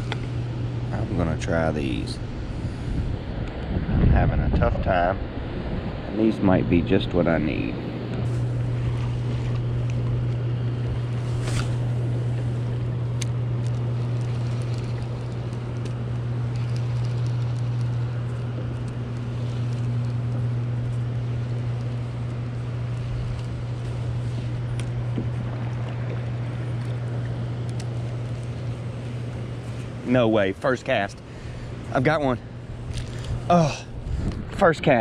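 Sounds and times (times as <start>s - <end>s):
gusting wind: 0.0s - 30.1s, 30.8s - 35.0s
low hum: 0.0s - 35.0s
churning water: 8.4s - 33.4s.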